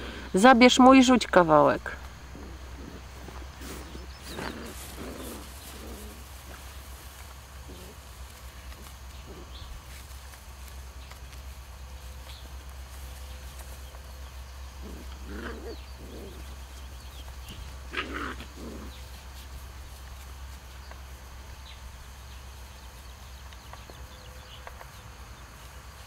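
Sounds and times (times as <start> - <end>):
puppies growling and grunting: 1.9 - 9.9, 14.2 - 19.4.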